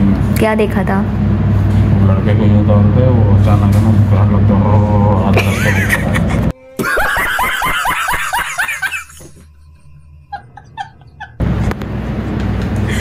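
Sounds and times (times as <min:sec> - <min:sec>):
low room hum: 0:00.0 - 0:13.0
man laughing hard: 0:05.3 - 0:09.7, 0:10.3 - 0:11.4.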